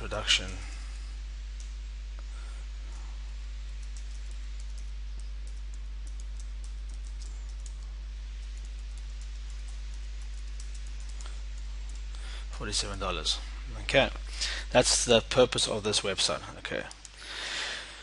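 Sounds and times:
low electrical hum: 0:00.0 - 0:18.0
keyboard typing clicks: 0:03.7 - 0:12.2.

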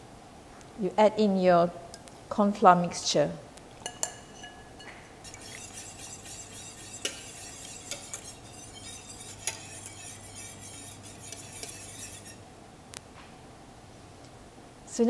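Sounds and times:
whisk clinking against pan: 0:03.8 - 0:12.4
whisk swishing liquid: 0:05.2 - 0:12.4.

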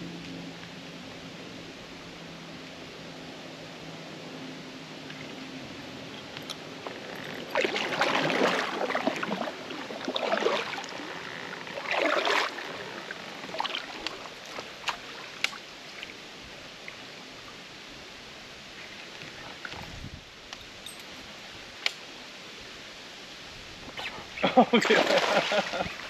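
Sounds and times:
water lapping against hull: 0:06.1 - 0:16.2
paddle strokes splashing: 0:06.2 - 0:16.2, 0:23.9 - 0:26.0.

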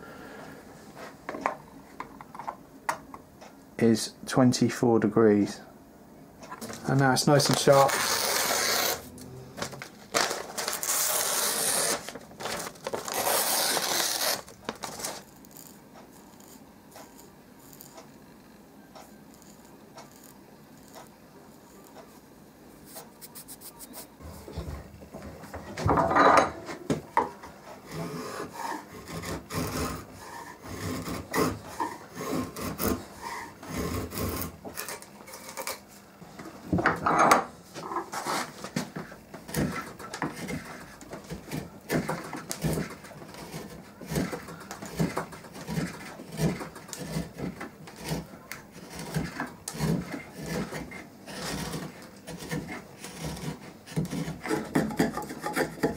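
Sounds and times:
chisel paring wood shavings: 0:06.7 - 0:09.0, 0:27.8 - 0:35.8, 0:38.1 - 0:55.9.

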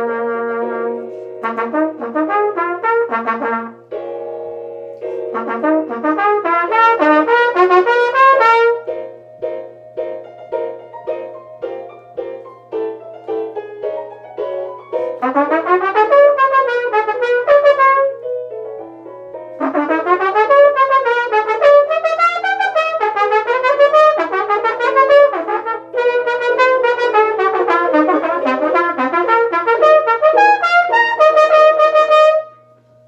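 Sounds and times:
solo trumpet playing: 0:00.0 - 0:04.0, 0:05.0 - 0:09.0, 0:15.0 - 0:18.3, 0:19.5 - 0:32.9.

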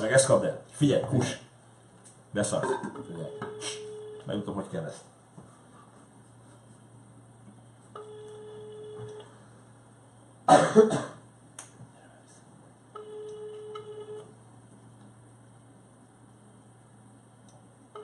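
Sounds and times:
telephone ringback tone: 0:03.0 - 0:04.4, 0:08.0 - 0:09.4, 0:13.0 - 0:14.3.

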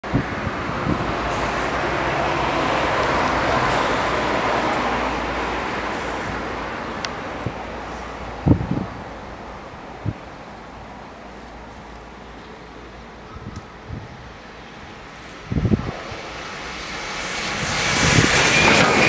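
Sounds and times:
vehicle passing by: 0:00.1 - 0:08.4, 0:14.8 - 0:19.0.

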